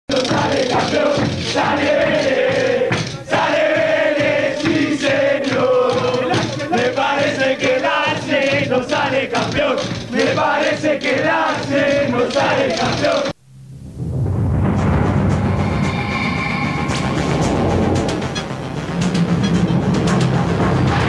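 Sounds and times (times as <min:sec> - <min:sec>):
crowd singing a chant: 0:00.1 - 0:13.4.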